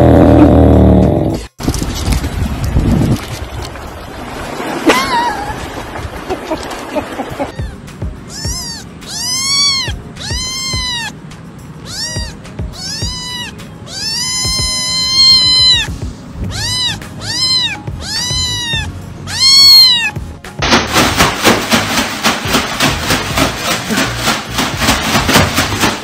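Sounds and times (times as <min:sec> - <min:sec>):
kitten meowing: 0:07.5 - 0:11.2, 0:11.8 - 0:20.2.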